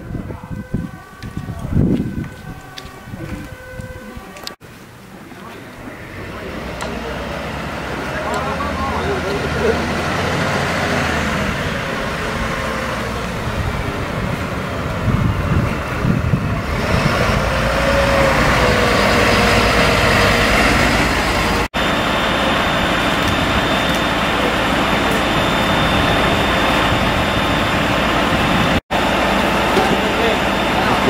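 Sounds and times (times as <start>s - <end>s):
diesel engine running: 5.5s - 31.0s.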